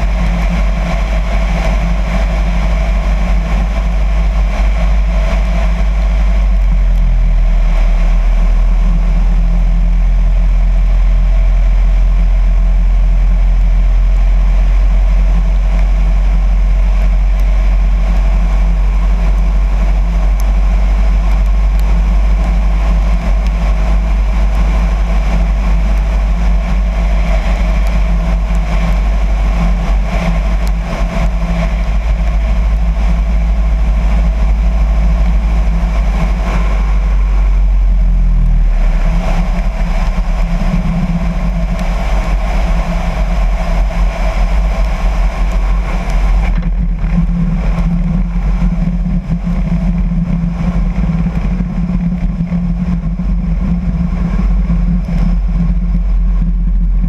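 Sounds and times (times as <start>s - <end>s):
propeller plane engine: 0.0s - 57.0s
wind rushing: 20.6s - 57.0s.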